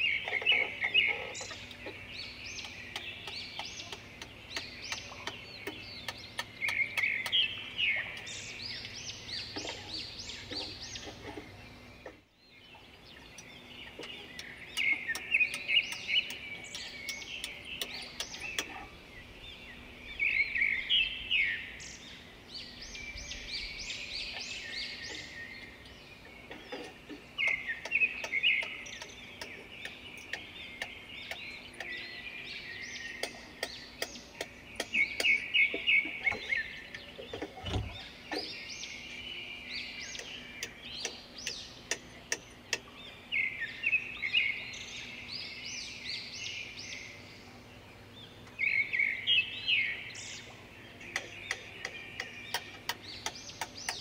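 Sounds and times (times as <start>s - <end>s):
woodland birds singing: 0.0s - 54.0s
sharp ticks: 13.3s - 18.8s, 27.1s - 32.0s, 33.1s - 35.4s, 40.1s - 42.9s, 51.1s - 54.0s.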